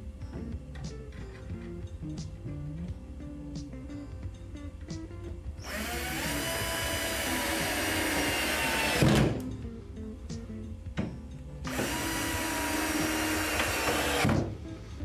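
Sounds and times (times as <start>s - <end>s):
background music: 0.0s - 15.0s
cordless drill whining: 5.6s - 9.3s, 11.7s - 14.3s.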